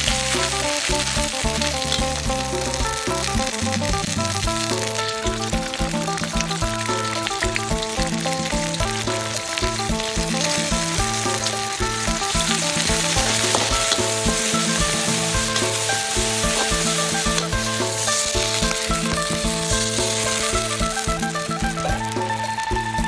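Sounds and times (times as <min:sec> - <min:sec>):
background music: 0:00.0 - 0:23.0
paste sizzling in oil in wok: 0:00.0 - 0:23.0
metal spatula scraping wok: 0:09.3 - 0:21.3.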